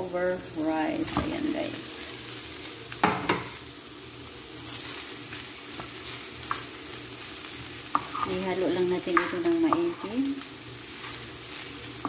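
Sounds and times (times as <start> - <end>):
food sizzling in frying pan: 0.0 - 12.0
wooden spatula stirring food: 4.7 - 12.0.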